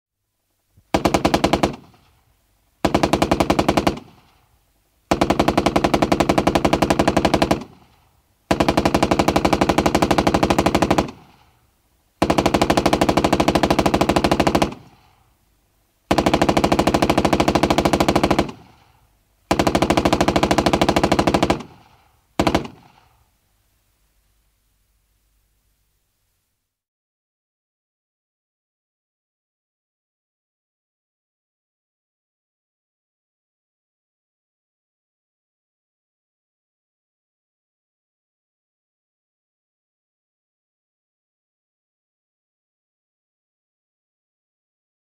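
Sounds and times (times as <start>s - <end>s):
machine gun firing bursts: 0.9s - 2.0s, 2.8s - 4.3s, 5.1s - 7.9s, 8.5s - 11.4s, 12.2s - 15.0s, 16.1s - 18.8s, 19.5s - 23.0s.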